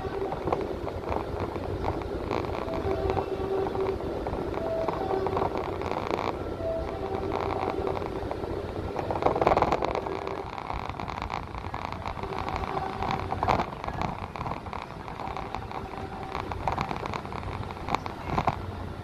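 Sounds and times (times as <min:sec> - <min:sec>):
faint hum: 0:00.0 - 0:19.0
vehicle engine and road noise: 0:00.0 - 0:19.0.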